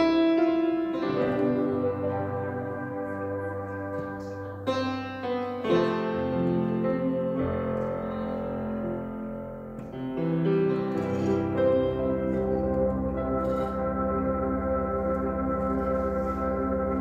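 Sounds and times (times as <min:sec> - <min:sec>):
grand piano chords: 0:00.0 - 0:17.0.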